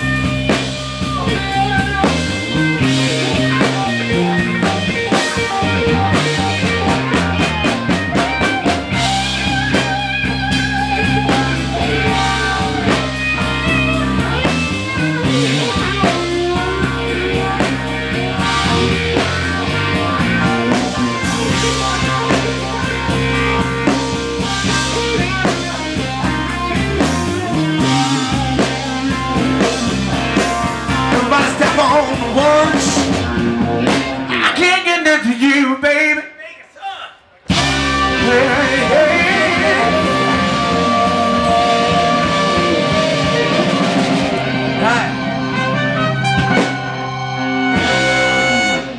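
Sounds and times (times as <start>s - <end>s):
drum kit: 0.0s - 35.0s, 37.4s - 48.9s
bass guitar: 0.0s - 35.8s, 37.4s - 48.9s
keyboard: 0.0s - 36.4s, 37.2s - 48.9s
saxophone: 37.5s - 48.9s
trumpet: 37.5s - 48.9s.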